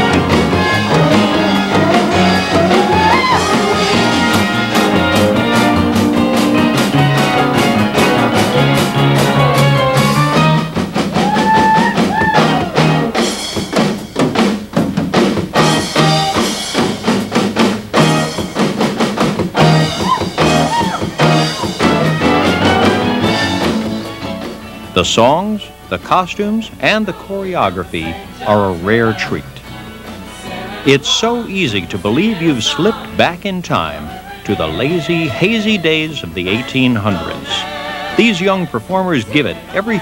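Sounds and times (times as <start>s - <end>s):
drum beat: 0.0s - 24.6s
electric guitar: 0.0s - 25.0s
live rock band playing: 0.0s - 25.8s.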